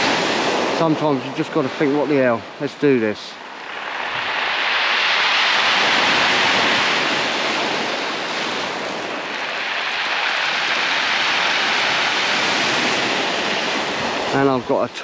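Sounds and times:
waves washing over shingle: 0:00.0 - 0:15.0.

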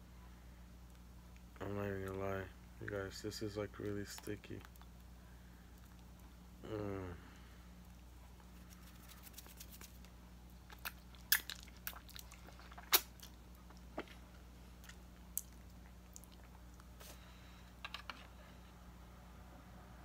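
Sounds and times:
wet mouth clicks and smacks: 0:10.7 - 0:13.8.

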